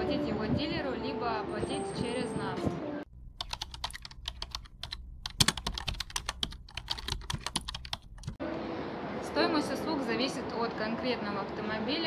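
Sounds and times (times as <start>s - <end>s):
keyboard typing clicks: 3.4s - 8.4s.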